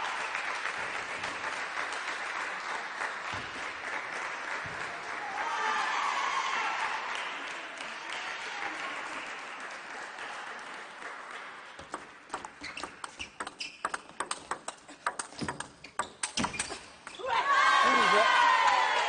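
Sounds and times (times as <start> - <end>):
applause: 0.0 - 12.3, 17.8 - 19.0
table tennis ball clicking: 11.8 - 16.8.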